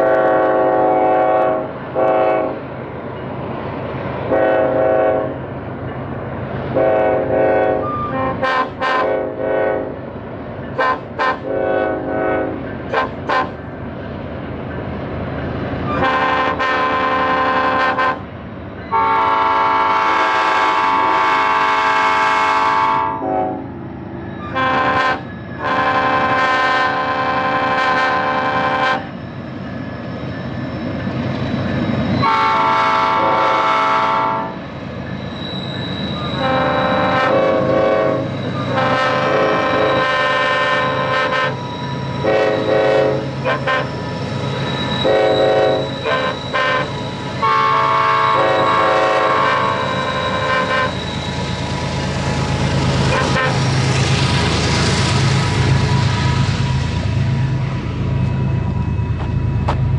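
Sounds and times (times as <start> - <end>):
locomotive air horn: 0.0 - 2.6, 4.3 - 5.4, 6.8 - 10.0, 10.8 - 13.6, 15.9 - 18.3, 18.9 - 23.7, 24.4 - 29.1, 32.2 - 34.6, 36.2 - 44.0, 45.0 - 51.2, 53.0 - 53.8
diesel locomotive engines rumbling: 0.0 - 59.9.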